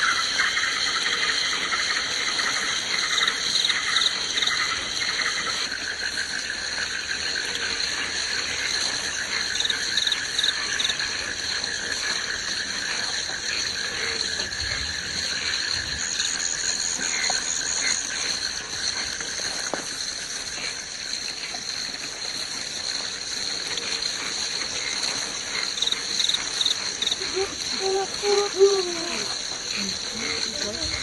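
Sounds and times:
insects and frogs trilling: 0.0s - 31.0s.

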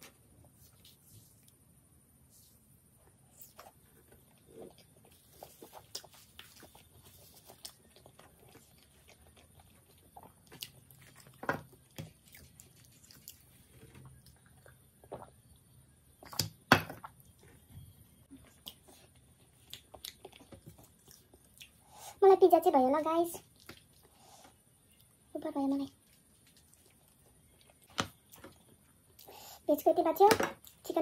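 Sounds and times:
chewing food: 3.6s - 15.6s, 18.3s - 22.0s, 23.4s - 25.2s, 25.9s - 29.4s.

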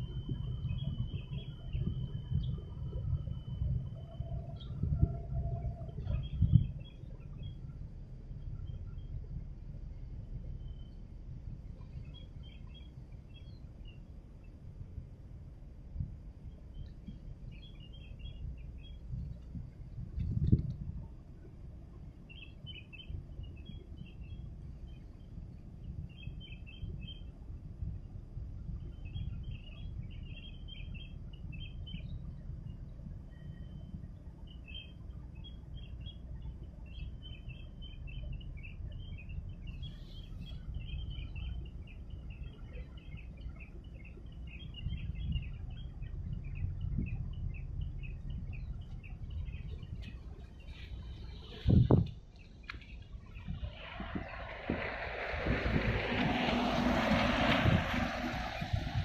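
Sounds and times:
low uneven rumble: 0.0s - 59.0s
small birds chirping: 28.9s - 54.3s.

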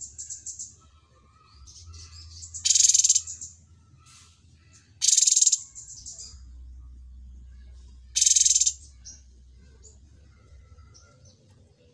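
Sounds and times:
bird chirps: 1.4s - 3.6s, 4.7s - 6.4s, 8.1s - 11.5s
bird trilling: 1.7s - 3.6s, 5.0s - 6.4s, 8.2s - 9.2s.

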